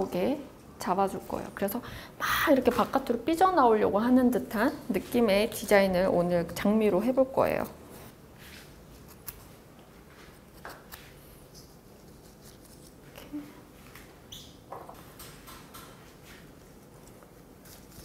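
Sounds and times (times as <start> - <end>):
rustling of leaves and stems: 16.6 - 18.0.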